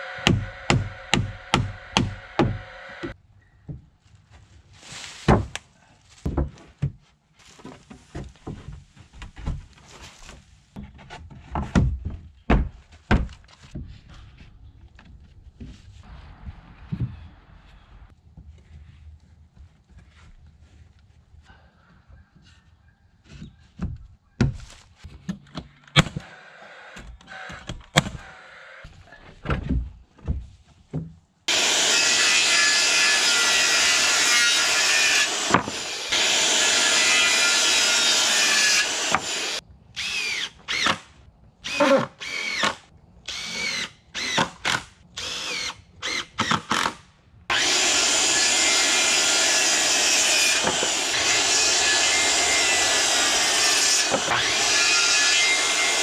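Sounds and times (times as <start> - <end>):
drill spinning up and down: 0.0 - 3.2, 31.5 - 41.0, 41.6 - 46.9, 47.5 - 56.0
power tool running: 31.5 - 40.8, 47.5 - 56.0.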